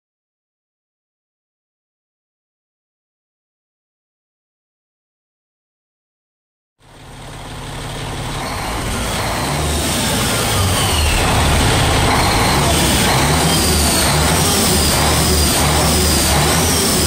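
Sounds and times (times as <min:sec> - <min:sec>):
diesel engine rumbling: 0:06.8 - 0:17.0.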